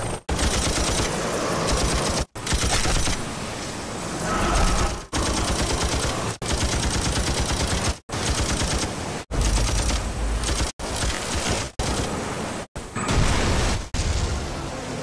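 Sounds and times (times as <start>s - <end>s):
machine gun firing bursts: 0.0s - 3.2s, 5.1s - 12.1s.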